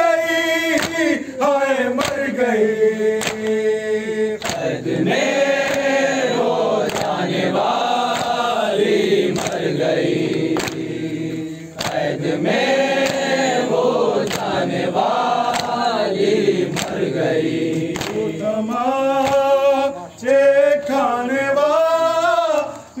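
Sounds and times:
lead voice singing: 0.0s - 23.0s
men chanting in unison: 0.0s - 23.0s
chest-beating slaps: 0.8s - 1.0s, 2.0s - 2.3s, 3.2s - 3.6s, 4.4s - 4.8s, 6.8s - 7.2s, 8.1s - 8.4s, 9.3s - 12.1s, 13.0s - 13.6s, 14.2s - 14.6s, 15.4s - 15.9s, 16.7s - 19.5s.

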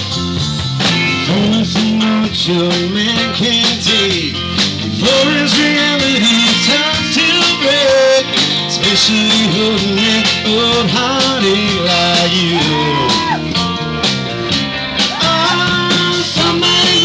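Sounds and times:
country-rock band playing: 0.0s - 17.0s.

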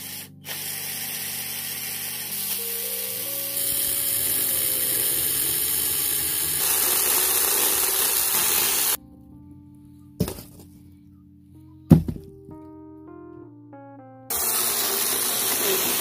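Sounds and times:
power saw cutting wood: 0.0s - 9.0s, 14.3s - 16.0s
background music: 0.0s - 16.0s.

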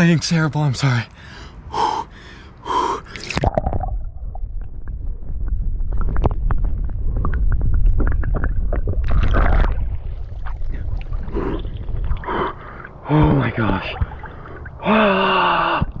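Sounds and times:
man gasping: 1.2s - 3.3s, 14.8s - 16.0s
water churning and bubbling: 1.2s - 16.0s.

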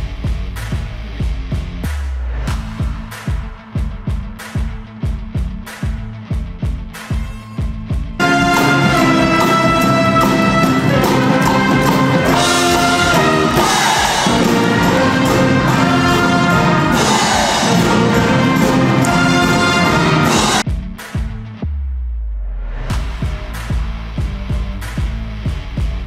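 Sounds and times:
brass band playing: 8.2s - 20.6s.

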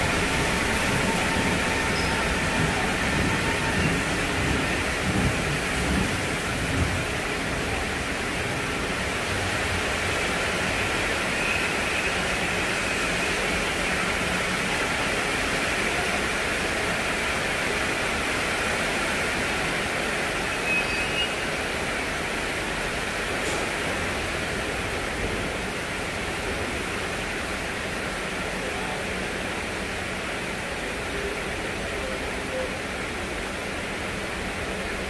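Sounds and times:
steady rushing hiss: 0.0s - 11.4s
train low rumble: 0.0s - 20.6s, 21.4s - 35.0s.

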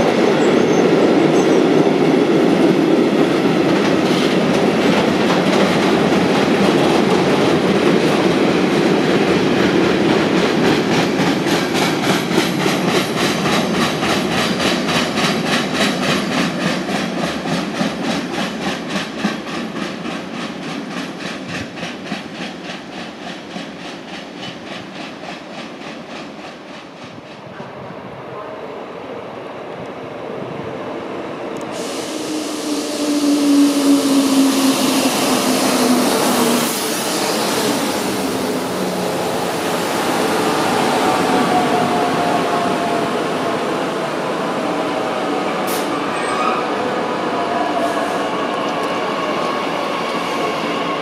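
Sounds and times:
train rumbling: 0.0s - 51.0s
train wheels clacking over rail joints: 9.0s - 27.6s.

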